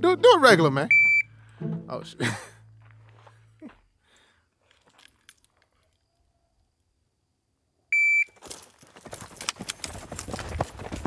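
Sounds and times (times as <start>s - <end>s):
shot timer beep: 0.9s - 1.4s
quick footsteps on dirt: 8.3s - 11.0s.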